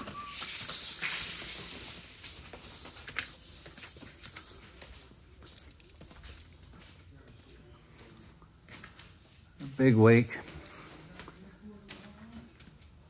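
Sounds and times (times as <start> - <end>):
hiss: 0.0 - 4.6.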